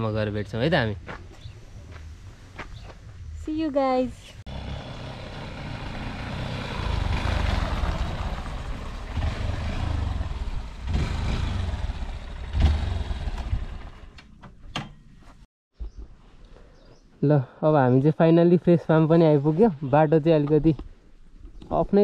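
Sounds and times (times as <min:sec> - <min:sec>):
motorcycle engine running: 0:04.5 - 0:14.1.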